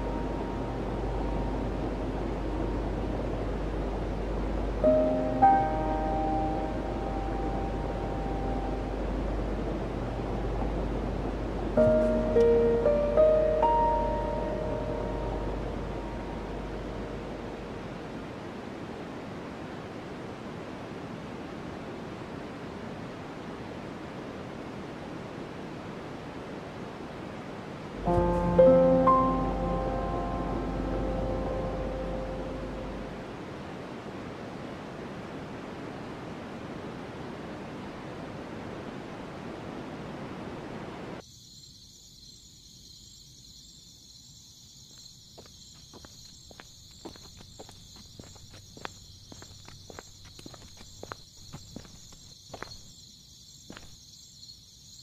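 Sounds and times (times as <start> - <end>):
soft music with held notes: 0.0 - 18.1, 28.0 - 33.2
crickets chirping: 0.0 - 55.0
ocean surf washing on beach: 15.8 - 30.4, 31.3 - 41.2
footsteps: 45.4 - 52.9, 53.7 - 54.0.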